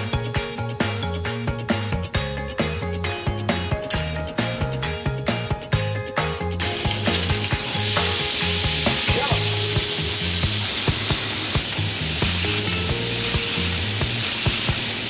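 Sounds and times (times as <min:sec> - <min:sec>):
background music beat: 0:00.0 - 0:15.0
ribs sizzling in a wok: 0:06.6 - 0:15.0.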